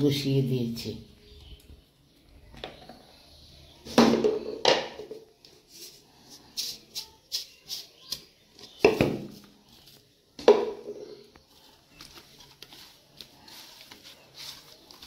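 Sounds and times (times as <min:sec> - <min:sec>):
plastic packet rattling and rustling: 0:11.4 - 0:15.0.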